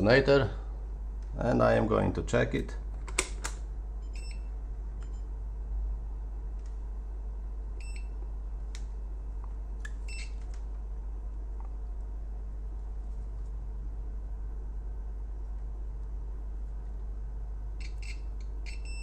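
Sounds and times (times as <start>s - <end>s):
multimeter short beeps: 7.8s - 8.2s, 10.1s - 10.4s, 17.8s - 19.0s.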